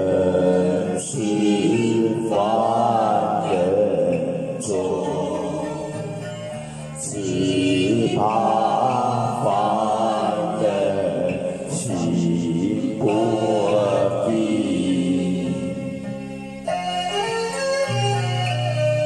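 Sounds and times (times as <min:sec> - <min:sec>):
man singing into a microphone: 0:00.0 - 0:06.2, 0:07.0 - 0:15.8.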